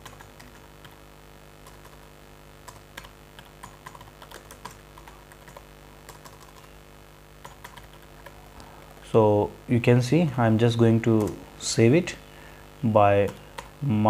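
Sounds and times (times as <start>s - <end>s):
keyboard typing: 0.0s - 1.0s, 1.6s - 2.0s, 2.6s - 6.7s, 7.4s - 9.0s, 11.2s - 11.4s, 13.2s - 13.8s
steady low hum: 0.0s - 14.0s.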